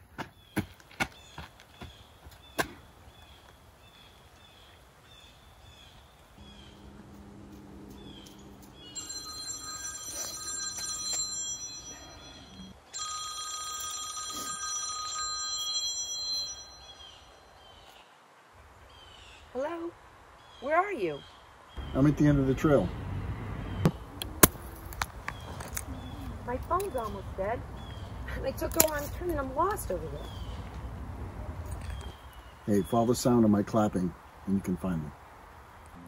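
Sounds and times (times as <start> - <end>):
mobile phone ringtone: 8.6 - 17.4.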